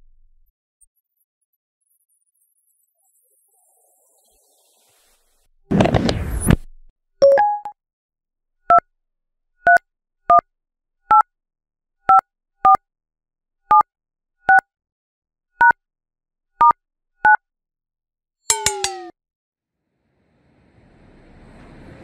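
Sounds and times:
telephone keypad beeps: 0:07.2 - 0:07.7
two-note beep: 0:07.2 - 0:07.8, 0:18.5 - 0:19.1.

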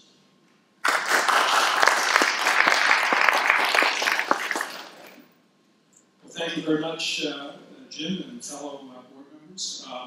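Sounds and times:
audience applauding: 0:00.8 - 0:05.3.

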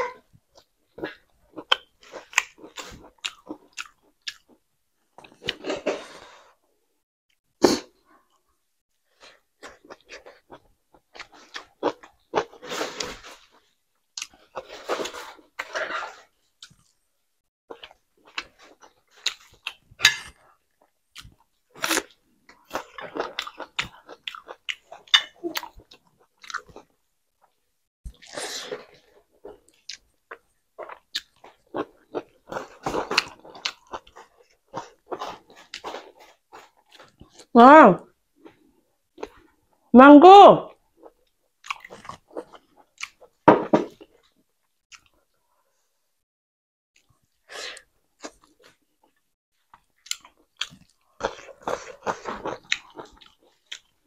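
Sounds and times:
person chewing food: 0:00.4 - 0:06.5, 0:07.6 - 0:17.0, 0:17.7 - 0:37.5, 0:40.8 - 0:45.7, 0:47.0 - 0:54.0.

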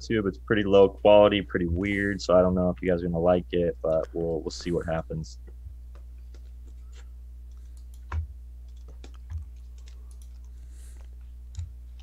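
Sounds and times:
low electrical hum: 0:00.0 - 0:12.0
computer clicks: 0:07.5 - 0:12.0.

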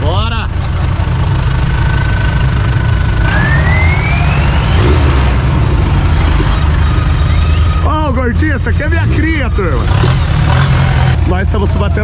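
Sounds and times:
vehicle engine rumble: 0:00.0 - 0:12.0
thin engine whine: 0:00.7 - 0:12.0.

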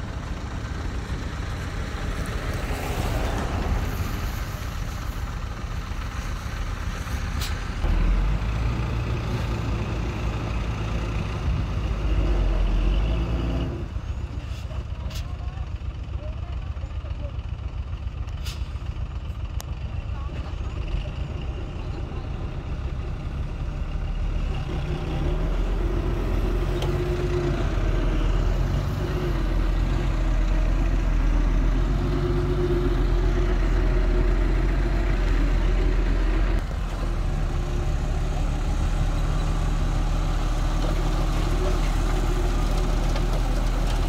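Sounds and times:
diesel truck engine running: 0:00.0 - 0:44.0
truck bed dumping soil: 0:36.8 - 0:44.0.

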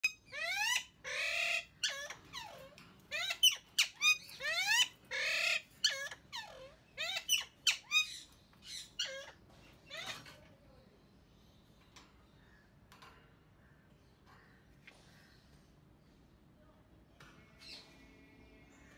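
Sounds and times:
parakeets squawking and screeching: 0:00.0 - 0:10.4.

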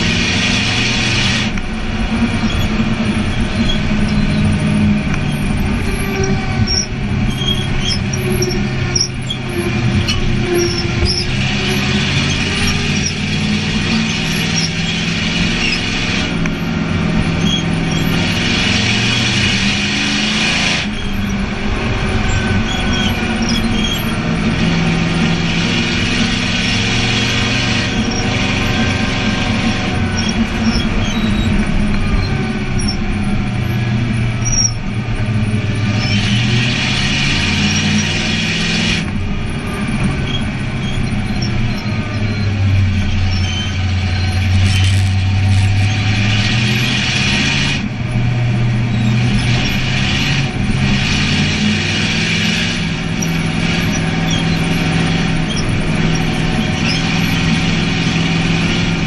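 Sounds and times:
race car engine: 0:00.0 - 0:59.0
tyres squealing: 0:00.0 - 0:59.0.

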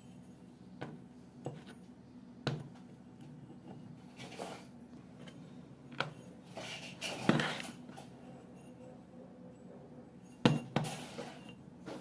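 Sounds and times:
metal housing scraping on workbench: 0:10.2 - 0:11.6.

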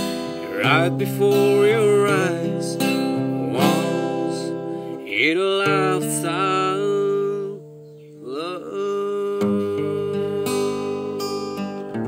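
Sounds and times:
strummed acoustic guitar: 0:00.0 - 0:12.0
man singing: 0:00.4 - 0:11.8.

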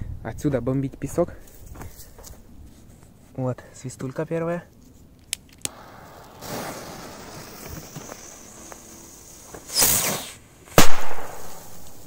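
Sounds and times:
loud hissing rush: 0:05.7 - 0:10.7
firecracker fuse hissing: 0:05.7 - 0:12.0
faint high whistle: 0:09.7 - 0:10.3.

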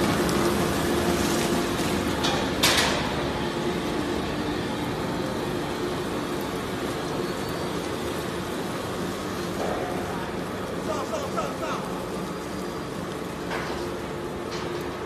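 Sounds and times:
industrial shredder running: 0:00.0 - 0:15.0.

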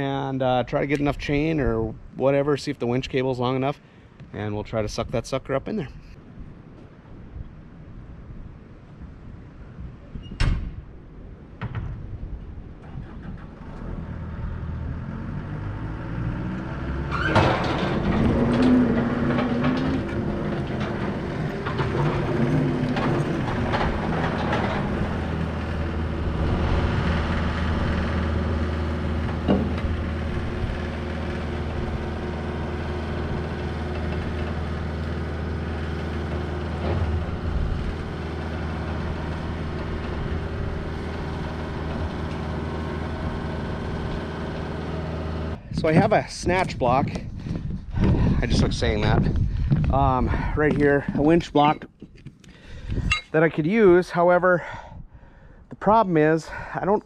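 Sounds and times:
diesel engine running: 0:12.8 - 0:53.5
machine clanks and knocks: 0:17.2 - 0:43.1.

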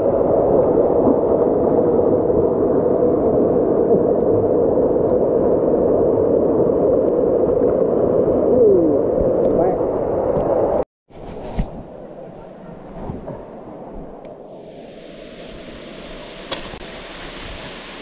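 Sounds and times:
waterfall rushing and splashing: 0:14.6 - 0:18.0.

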